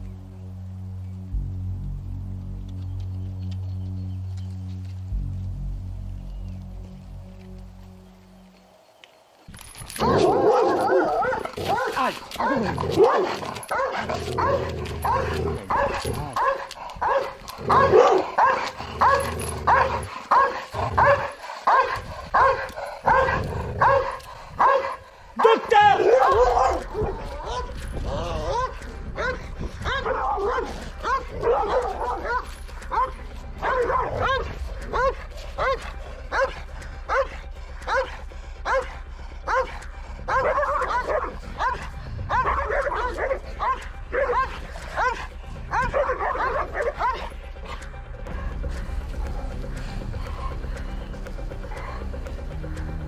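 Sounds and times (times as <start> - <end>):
low rumble: 0.0 - 8.6, 26.4 - 53.0
dog yelping barks: 10.0 - 27.8, 28.5 - 37.3, 39.5 - 47.3.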